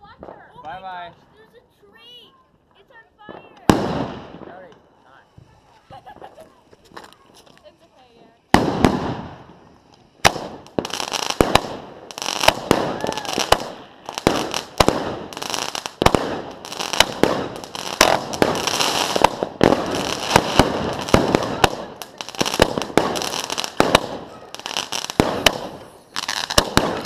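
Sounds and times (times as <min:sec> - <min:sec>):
fireworks hissing and crackling: 0:00.0 - 0:27.0
fireworks banging: 0:02.6 - 0:27.0.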